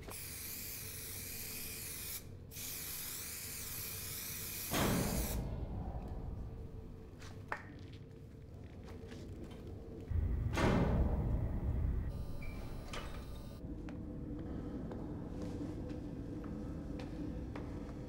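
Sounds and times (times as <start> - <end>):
pressurised spraying hiss: 0.2 - 5.4
low whoosh: 5.3 - 7.2, 10.1 - 12.5.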